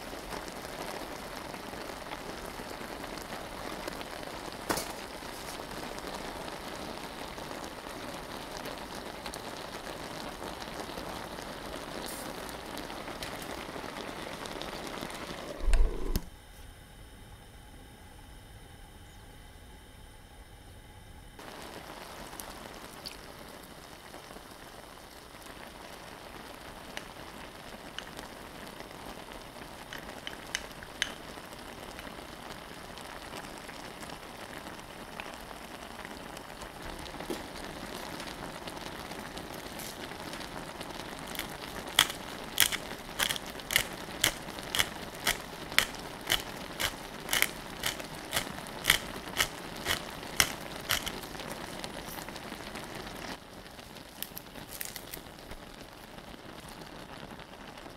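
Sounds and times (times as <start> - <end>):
pot simmering and bubbling: 0.0 - 16.4, 21.4 - 57.9
pepper grinder clicks: 29.9 - 31.2, 41.4 - 51.2.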